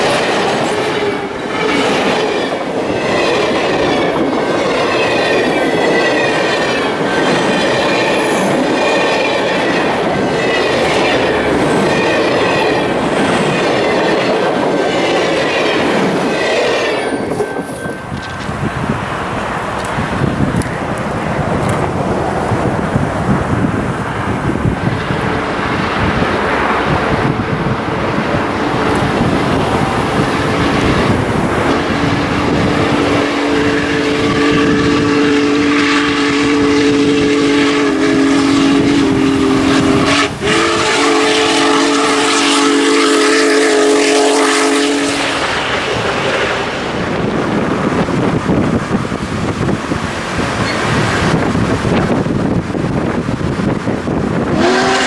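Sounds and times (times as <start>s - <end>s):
steam locomotive passing: 0.0s - 55.0s
chime steam whistle: 2.5s - 18.5s, 33.0s - 45.5s, 54.6s - 55.0s.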